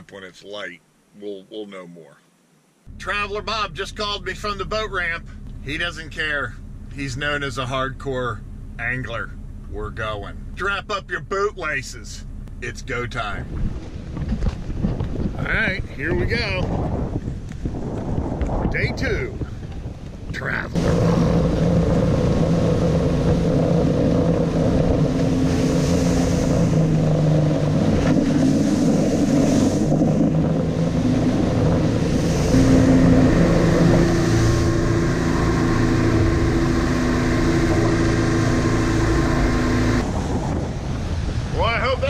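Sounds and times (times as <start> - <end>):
outboard motors running: 2.9 - 42.0
boat crossing choppy water: 12.2 - 42.0
wind noise: 13.3 - 42.0.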